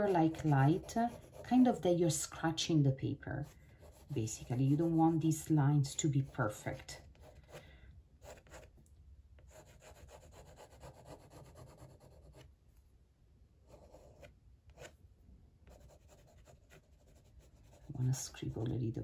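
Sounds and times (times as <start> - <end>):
pen scratching on paper: 0.0 - 2.0, 3.4 - 5.5, 6.2 - 7.6, 8.2 - 8.7, 9.5 - 12.4, 13.7 - 14.9, 15.7 - 18.6.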